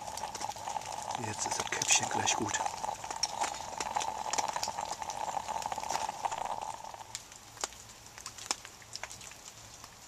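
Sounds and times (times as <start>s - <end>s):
moka pot gurgling and hissing: 0.0s - 10.0s.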